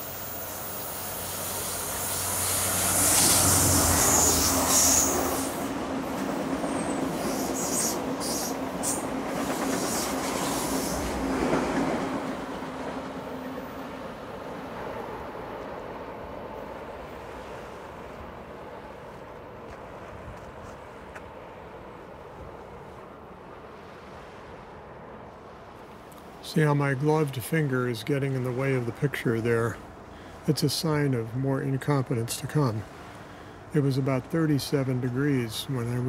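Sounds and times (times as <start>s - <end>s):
train cars rushing past: 0.0s - 31.2s
diesel locomotive passing: 0.0s - 36.0s
high wheel squeals: 0.2s - 5.6s, 6.6s - 9.0s.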